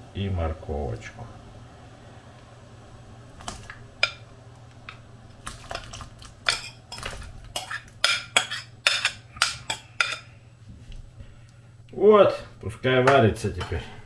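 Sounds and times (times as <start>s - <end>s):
utensils clinking against pot: 5.7s - 10.3s.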